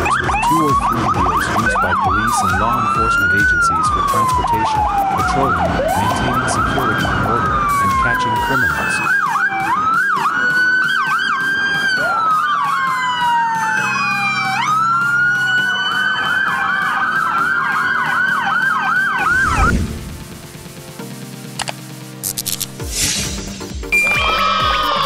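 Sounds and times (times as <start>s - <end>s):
yelping siren: 0.0s - 19.7s, 23.9s - 25.0s
wailing siren: 0.0s - 19.8s, 23.9s - 25.0s
quiet background music: 0.0s - 23.2s
low whoosh: 19.2s - 20.6s.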